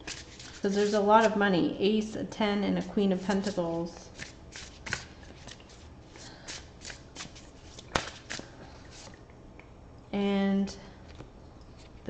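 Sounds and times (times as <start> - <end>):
cards shuffling: 0.0 - 1.4, 3.3 - 8.5.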